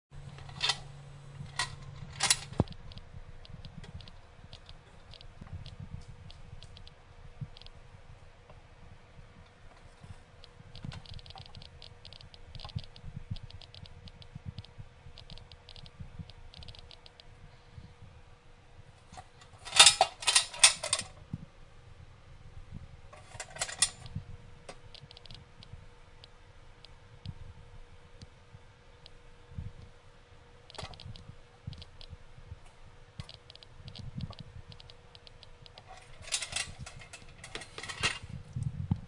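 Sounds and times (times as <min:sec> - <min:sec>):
faint steady hum: 0:00.1 - 0:39.0
geiger counter clicking: 0:00.3 - 0:07.8, 0:10.4 - 0:17.4, 0:23.3 - 0:27.4, 0:30.7 - 0:32.6, 0:33.2 - 0:39.0.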